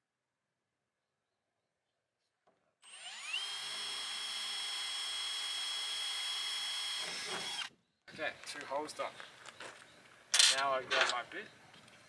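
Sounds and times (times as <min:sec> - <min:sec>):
cordless drill whining: 0:02.8 - 0:07.7.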